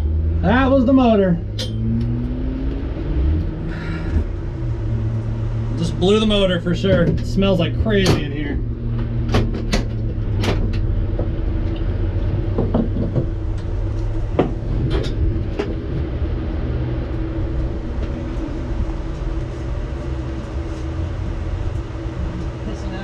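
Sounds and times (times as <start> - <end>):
vehicle engine droning: 0.0 - 23.0
knocks and clunks: 6.7 - 16.1.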